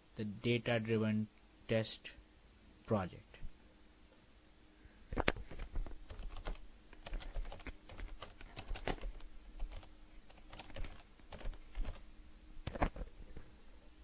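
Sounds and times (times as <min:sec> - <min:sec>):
computer keyboard typing: 0:05.6 - 0:12.0.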